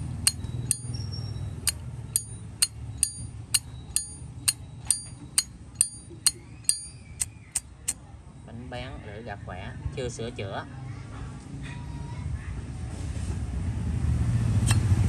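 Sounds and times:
high metallic chime: 1.7 - 7.0.

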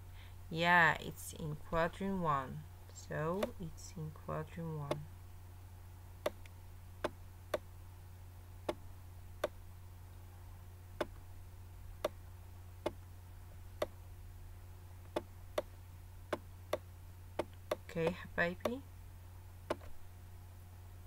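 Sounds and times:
low electrical hum: 0.0 - 21.0
sharp clicks: 3.3 - 3.6, 19.7 - 20.0.

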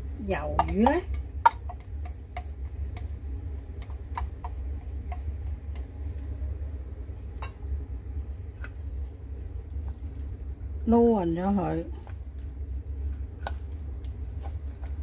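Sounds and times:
steady low hum: 0.0 - 15.0
chopsticks clicking on steel bowl: 0.6 - 3.1, 3.8 - 6.3.

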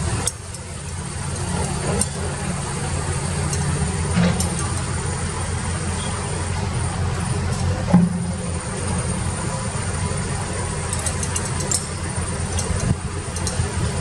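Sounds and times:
excavator engine running: 0.0 - 14.0.

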